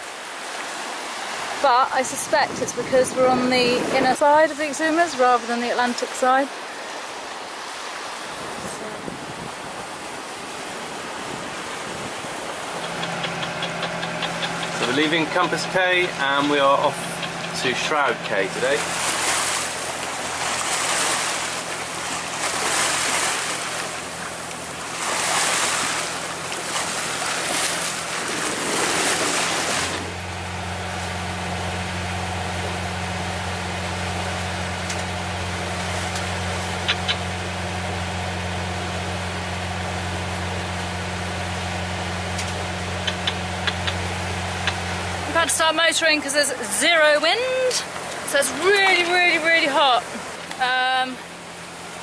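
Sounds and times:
boat engine humming: 0.0s - 52.0s
water along hull: 0.0s - 52.0s
wind on microphone: 2.2s - 4.4s, 8.3s - 14.8s.

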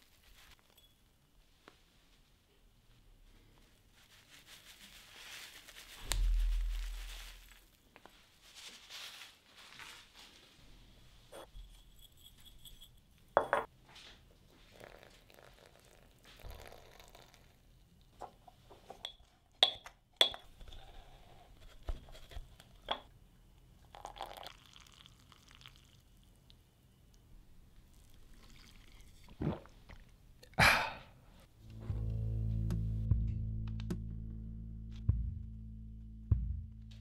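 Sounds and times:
dry leaves rustling: 4.0s - 7.7s, 8.4s - 10.3s.

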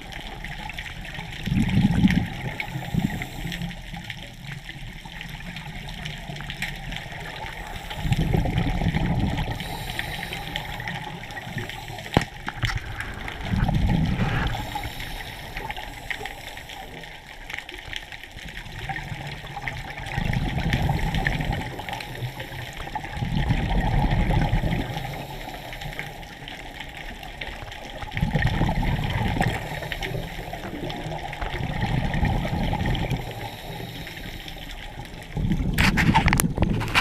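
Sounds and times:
underwater hiss: 1.1s - 4.2s, 6.8s - 18.0s, 20.0s - 35.4s
low rushing water surge: 7.4s - 17.4s.

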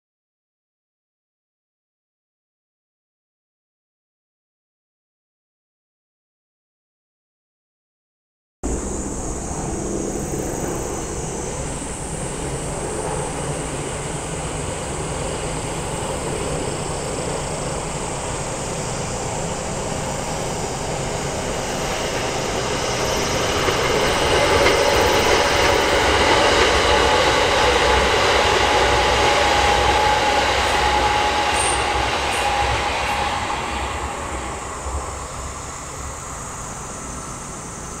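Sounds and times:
electric train passing: 8.6s - 38.0s.

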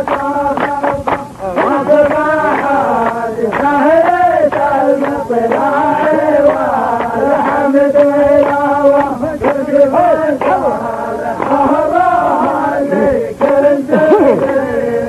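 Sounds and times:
man chanting poetry: 12.2s - 14.6s.

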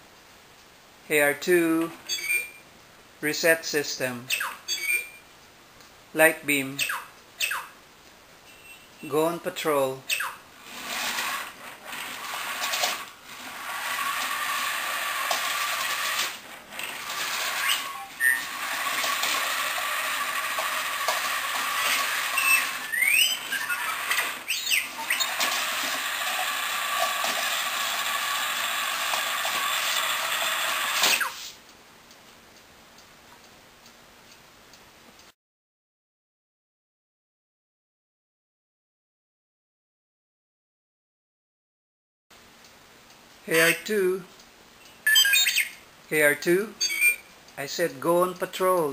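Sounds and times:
electronic beep-whistles: 2.1s - 2.6s, 4.7s - 5.2s, 22.4s - 23.8s
toy robot motors whirring: 10.1s - 31.6s.

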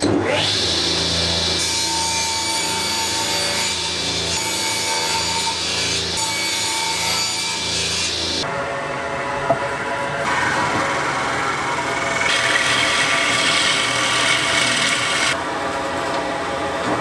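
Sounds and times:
table saw whining: 0.0s - 15.4s
saw blade cutting board: 10.2s - 15.4s.

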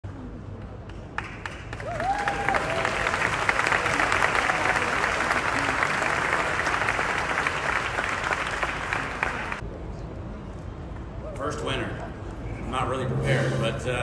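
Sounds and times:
crowd applauding: 0.9s - 9.6s.

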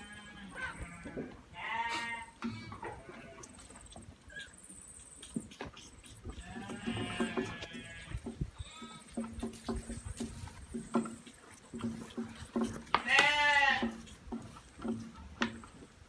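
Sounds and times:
goat kids bleating: 0.0s - 4.6s, 5.3s - 9.4s, 11.1s - 14.6s.

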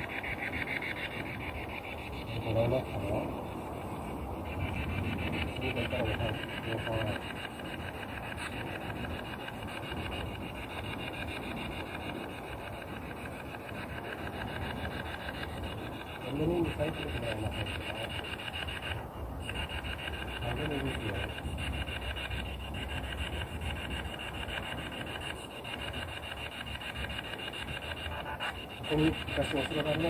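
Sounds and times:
radio static sweeping stations: 0.0s - 30.0s
voice-like radio fragments: 2.2s - 8.9s, 16.2s - 21.6s, 26.8s - 30.0s.

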